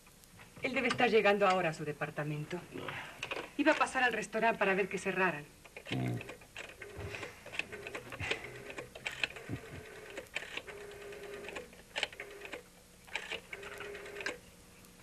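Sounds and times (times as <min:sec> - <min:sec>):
telephone dial clicks: 0:05.7 - 0:14.4.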